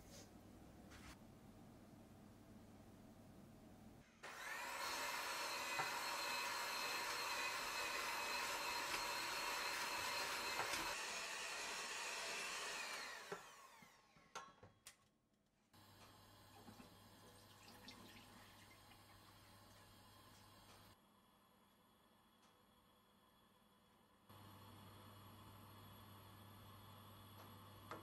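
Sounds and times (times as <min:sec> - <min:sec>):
electric hand mixer whirring: 0:04.2 - 0:14.2.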